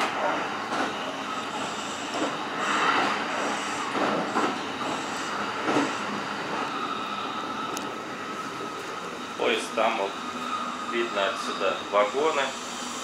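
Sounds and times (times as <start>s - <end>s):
train wheels rolling on rail: 0.0s - 13.0s
thin steady whine: 4.7s - 13.0s.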